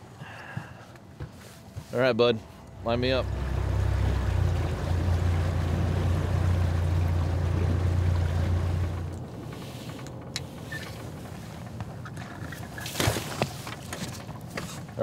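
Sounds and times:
boat motor humming: 0.0 - 15.0
water and wind rushing: 3.0 - 15.0.

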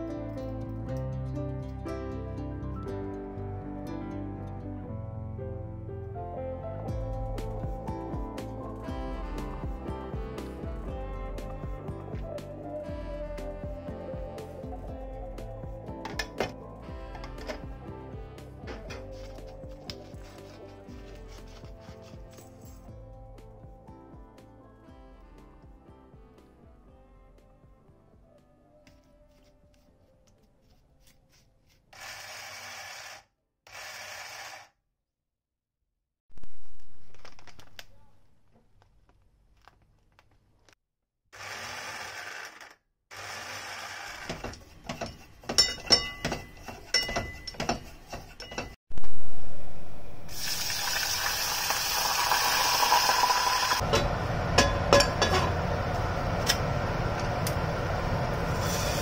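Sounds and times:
utensil clinking in metal pot: 44.3 - 48.8, 53.8 - 55.6
food frying in hot oil: 50.3 - 53.8
tap water running: 50.3 - 55.5.

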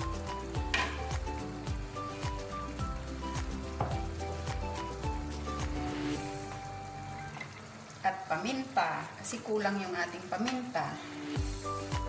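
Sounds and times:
instrumental background music: 0.0 - 7.9, 10.5 - 12.0.

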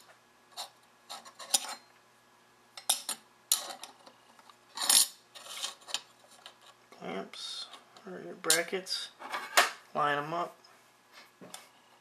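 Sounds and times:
metal parts clinking and scraping: 2.8 - 4.1, 4.7 - 6.7.

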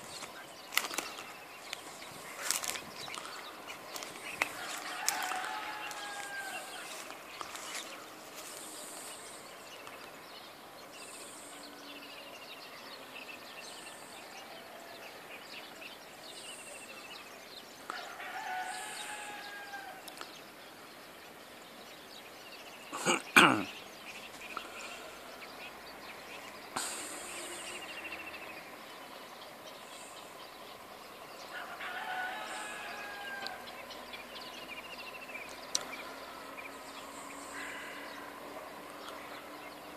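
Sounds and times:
small birds chirping: 0.0 - 39.9
rooster crowing: 4.3 - 7.1, 14.2 - 15.5, 17.9 - 20.2, 31.5 - 34.5.

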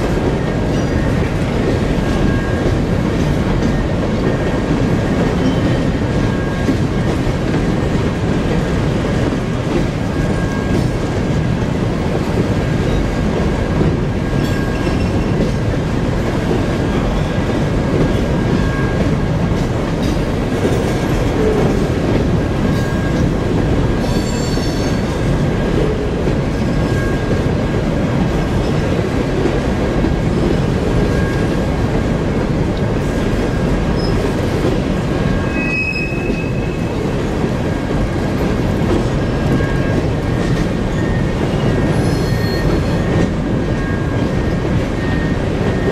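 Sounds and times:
train wheels rumbling on rail: 0.0 - 45.9
wheel squeal: 35.3 - 36.9, 40.9 - 43.2.

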